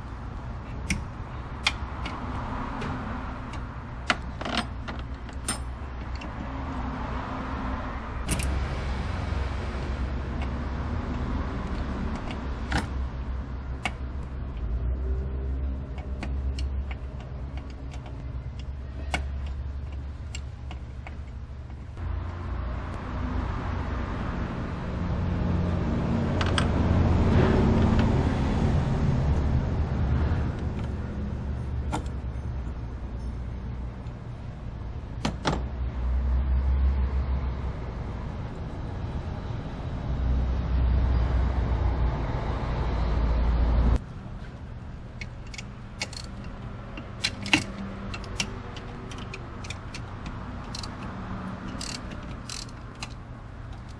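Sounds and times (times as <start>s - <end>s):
vehicle engine rumbling: 0.0s - 53.9s
wrench metallic clicks: 8.2s - 8.6s, 45.1s - 53.9s.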